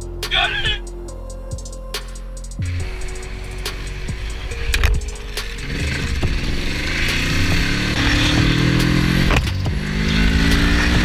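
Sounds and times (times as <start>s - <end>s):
motorcycle engine accelerating: 2.6s - 11.0s.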